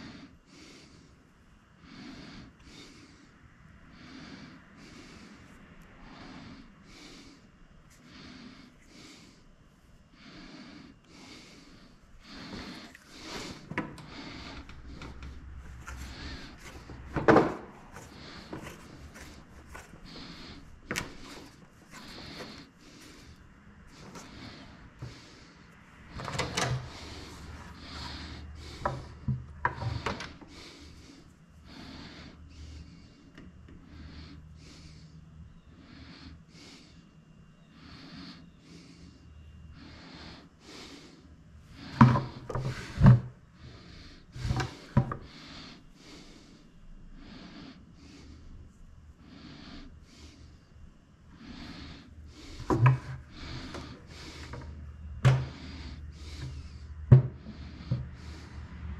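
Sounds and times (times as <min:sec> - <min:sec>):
clunks and knocks: 0:52.6 - 0:55.6, 0:57.1 - 0:58.2.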